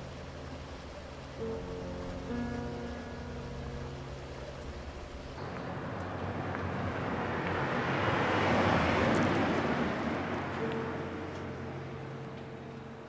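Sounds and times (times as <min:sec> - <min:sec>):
vehicle passing by: 0:03.6 - 0:13.0.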